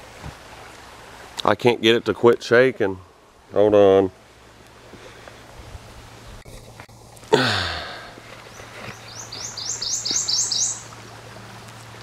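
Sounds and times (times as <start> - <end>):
songbird singing high notes: 9.1 - 10.9.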